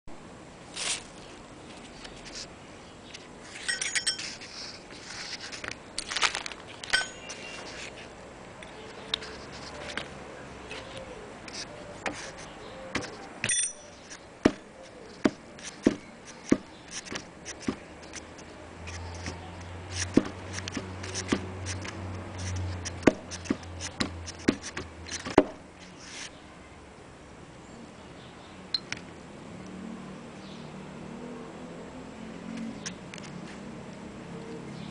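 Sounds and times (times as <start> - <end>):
ringing metallic clink: 3.6 - 4.4, 6.9 - 7.4, 13.4 - 14.0.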